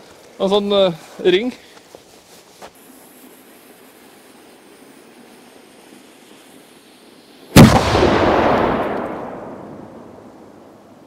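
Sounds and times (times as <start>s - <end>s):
loud firework bang: 7.6s - 10.3s
rumbling echo: 7.6s - 10.7s.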